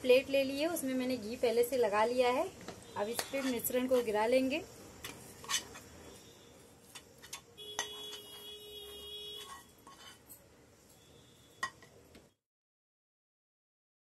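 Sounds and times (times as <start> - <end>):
spoon scraping and tapping pan: 2.6 - 4.2, 5.0 - 6.2, 6.8 - 10.4, 11.6 - 12.0.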